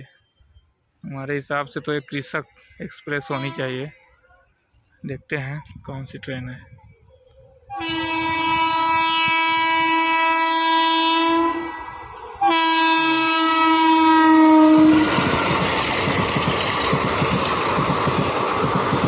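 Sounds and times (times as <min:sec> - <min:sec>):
train horn blasts: 0:03.1 - 0:03.9, 0:07.7 - 0:15.2
train wheels on rails: 0:14.3 - 0:19.0.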